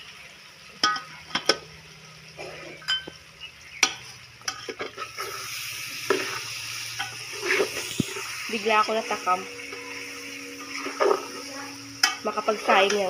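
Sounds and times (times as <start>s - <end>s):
meat sizzling: 0.0s - 13.0s
metal spoon scraping metal pot: 4.4s - 13.0s.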